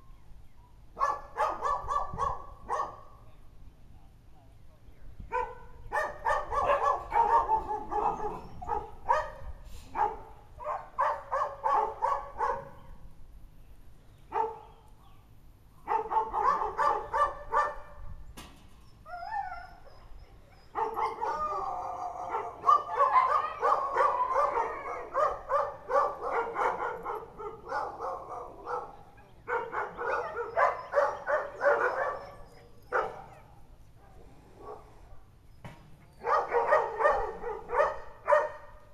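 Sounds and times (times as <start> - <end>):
dogs barking: 1.0 - 3.1, 5.3 - 12.9, 14.3 - 14.8, 15.8 - 18.0, 20.6 - 33.5, 36.2 - 38.8.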